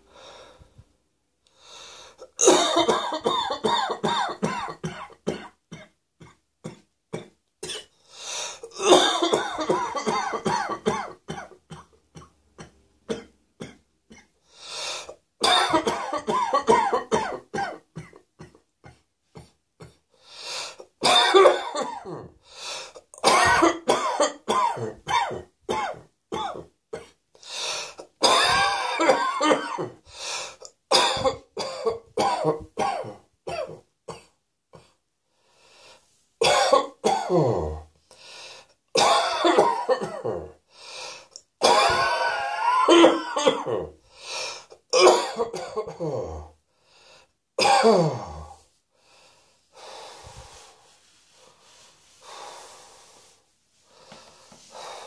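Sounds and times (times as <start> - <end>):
person coughing: 2.2 - 7.9, 8.6 - 14.3, 15.1 - 20.0, 21.0 - 22.4, 23.1 - 27.2, 28.0 - 30.0, 30.9 - 35.0, 36.4 - 37.9, 39.0 - 40.6, 41.6 - 44.0, 44.8 - 46.5, 47.6 - 48.5.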